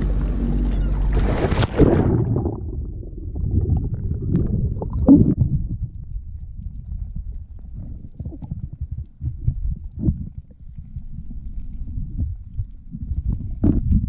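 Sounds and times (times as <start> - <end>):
muffled underwater rumbling and bubbling: 0.0 - 14.0
diver splashing into water: 1.1 - 2.8.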